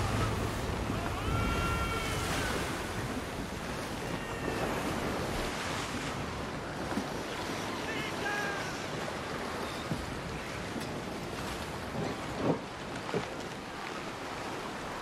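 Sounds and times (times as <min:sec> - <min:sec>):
drawn-out high cries: 0:00.0 - 0:03.0
sea waves washing: 0:00.0 - 0:15.0
wind: 0:00.0 - 0:15.0.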